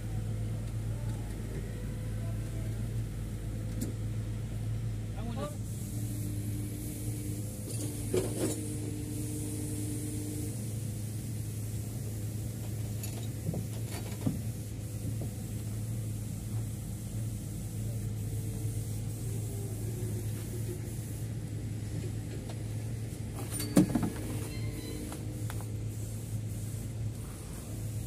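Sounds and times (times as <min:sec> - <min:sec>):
low machine hum: 0:00.0 - 0:28.0
ringing metal clank of chains: 0:23.5 - 0:25.0.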